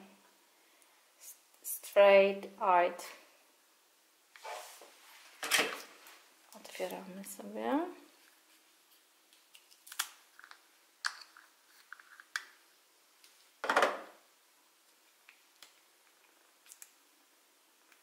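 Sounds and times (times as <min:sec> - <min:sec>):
rustling scrape: 0:04.4 - 0:07.0.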